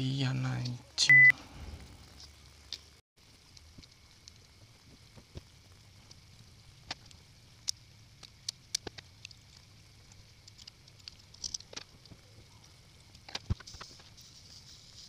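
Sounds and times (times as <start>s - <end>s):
small metal clicks: 6.8s - 12.2s.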